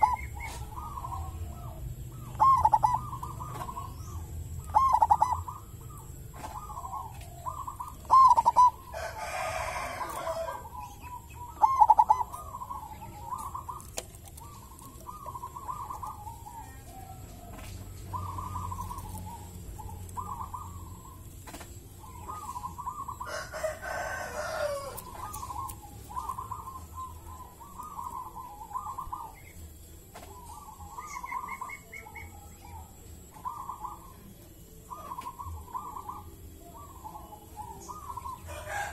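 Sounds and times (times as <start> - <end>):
dove cooing: 0.0 - 38.9
rooster crowing: 8.9 - 10.8, 23.1 - 25.4, 38.2 - 38.9.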